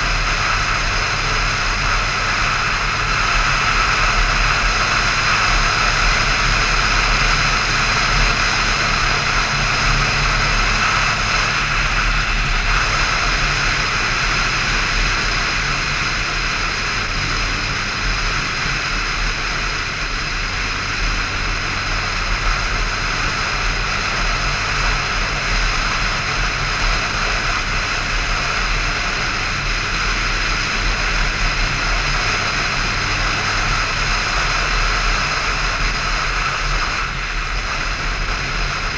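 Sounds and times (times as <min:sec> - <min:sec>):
motorcycle engine cruising: 0:00.0 - 0:38.9
wind and road noise: 0:00.0 - 0:38.9.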